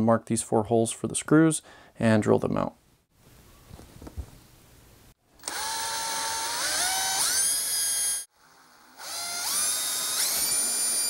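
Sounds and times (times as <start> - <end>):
cordless drill whining: 5.4 - 11.0.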